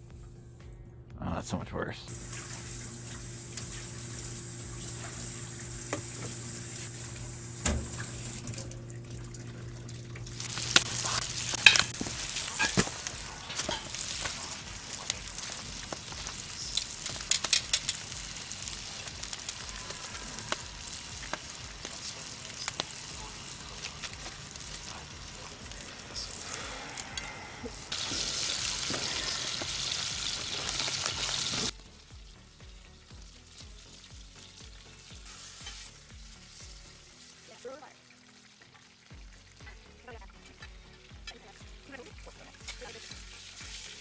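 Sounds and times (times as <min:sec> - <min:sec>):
tap water running into sink: 0:02.1 - 0:14.3, 0:28.0 - 0:31.7
meat sizzling in a skillet: 0:02.1 - 0:44.0
sharp pops and crackles: 0:09.3 - 0:27.3.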